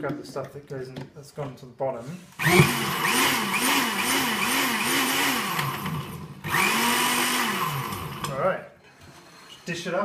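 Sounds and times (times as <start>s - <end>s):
jug blender blending ice: 2.4s - 8.4s.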